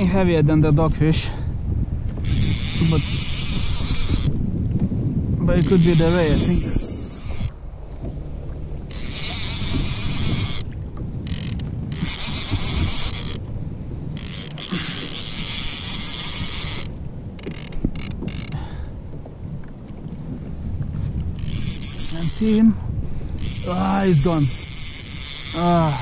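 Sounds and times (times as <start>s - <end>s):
fishing reel gears whirring: 2.2s - 4.4s, 5.5s - 7.6s, 8.7s - 13.5s, 14.1s - 18.6s, 21.4s - 26.0s.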